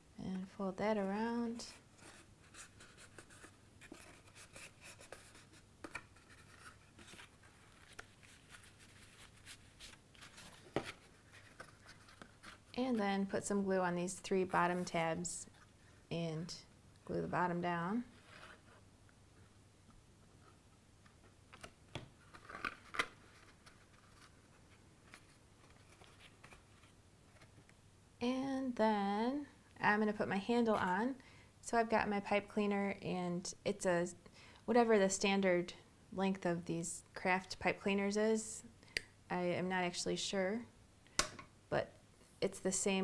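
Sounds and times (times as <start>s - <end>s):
cardstock rustling and tapping: 2.1s - 12.8s.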